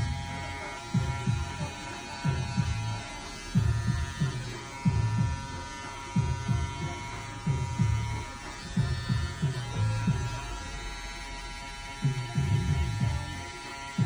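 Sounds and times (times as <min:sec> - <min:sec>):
electric hair clippers buzzing: 0:00.0 - 0:14.0
low paired thumps: 0:03.5 - 0:10.3.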